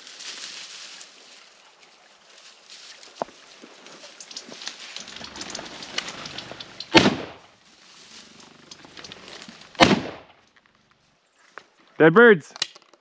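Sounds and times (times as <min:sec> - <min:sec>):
footsteps crunching through dry grass: 0:00.0 - 0:11.9
shotgun shot: 0:06.9 - 0:07.5, 0:09.8 - 0:10.3.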